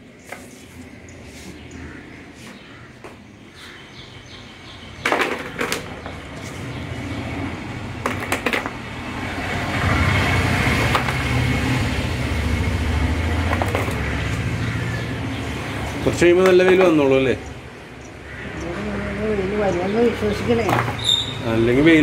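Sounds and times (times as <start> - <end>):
sharp knocks: 13.4 - 14.3.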